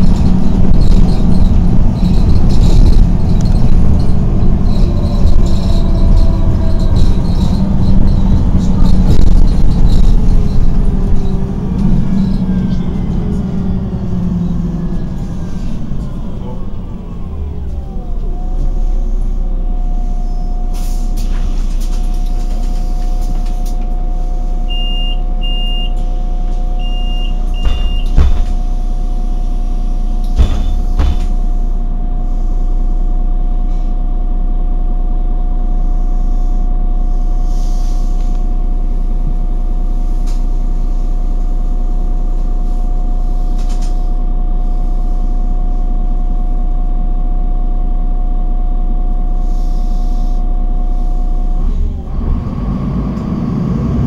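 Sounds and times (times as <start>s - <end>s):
bus engine idling: 0.0s - 54.0s
air brake hissing: 18.6s - 21.7s, 35.9s - 38.5s, 49.4s - 51.2s
short high beeps: 24.7s - 26.0s, 26.8s - 28.2s
knocks: 27.6s - 28.6s, 30.4s - 31.3s.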